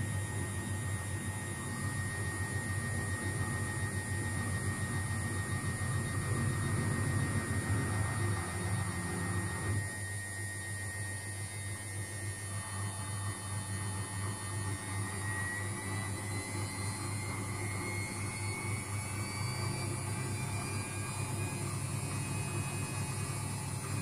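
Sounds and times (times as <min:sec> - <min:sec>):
washing machine running: 0:00.0 - 0:24.0.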